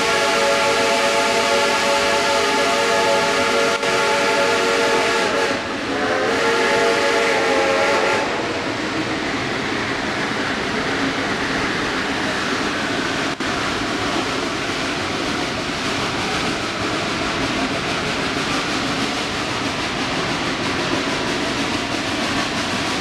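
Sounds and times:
steam locomotive whistle blasts: 0:00.0 - 0:08.6
train running: 0:00.0 - 0:23.0.

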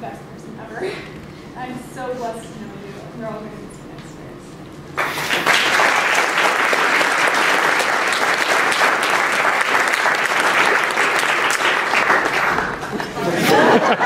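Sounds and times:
audience applauding: 0:05.0 - 0:13.1.

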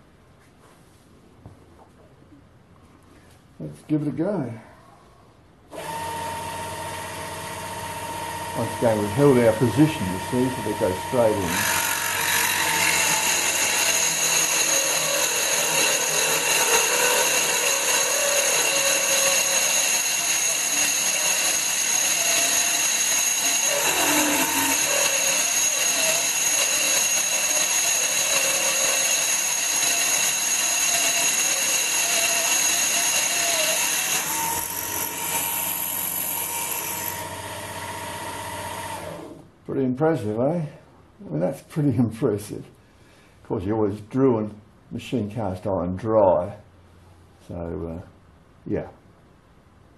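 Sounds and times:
drill spindle whining into metal: 0:05.8 - 0:39.4.

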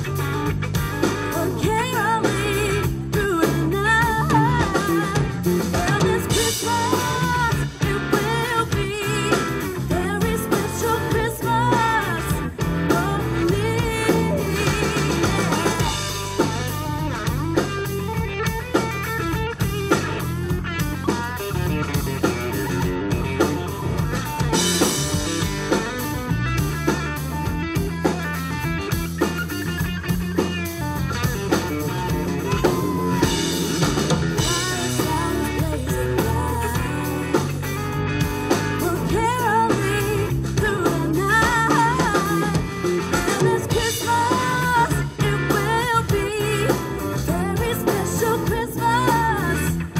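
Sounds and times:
bass guitar: 0:00.0 - 0:49.9
drum kit: 0:00.0 - 0:49.9
electric guitar: 0:00.0 - 0:49.9
woman singing: 0:01.2 - 0:16.9, 0:34.3 - 0:37.8, 0:38.5 - 0:49.9.

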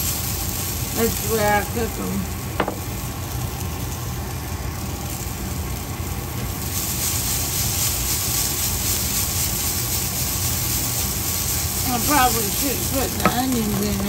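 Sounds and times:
vegetables sizzling in a pan: 0:00.0 - 0:14.0.

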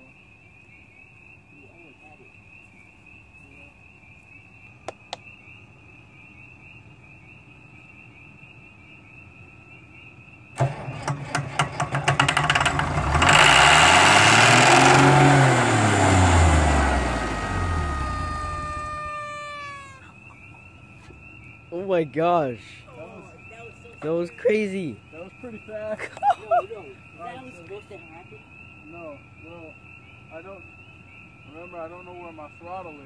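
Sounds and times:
crickets chirping: 0:00.0 - 0:33.0
diesel engine cranking and racing: 0:10.6 - 0:20.0.

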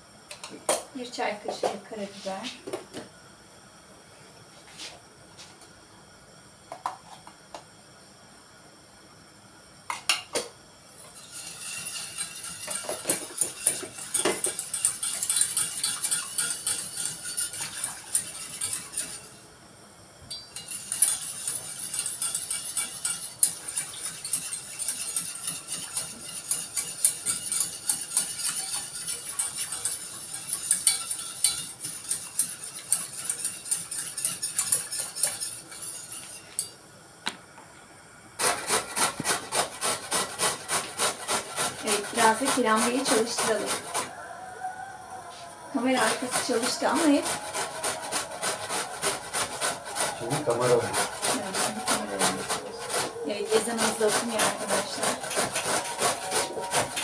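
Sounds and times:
whisk clinking and scraping in pot: 0:11.0 - 0:19.4, 0:20.3 - 0:36.8, 0:38.4 - 0:44.1, 0:45.8 - 0:57.0.

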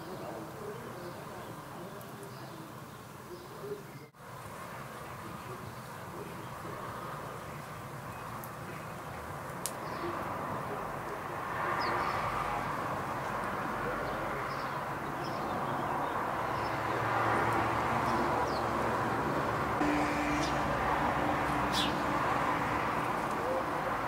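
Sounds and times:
outdoor background noise: 0:00.0 - 0:24.0
bird chirps: 0:19.8 - 0:22.1.

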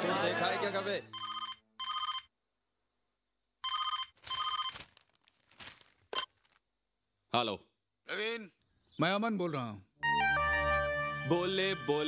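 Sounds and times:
electronic telephone ringing: 0:01.0 - 0:02.3, 0:03.6 - 0:04.8.

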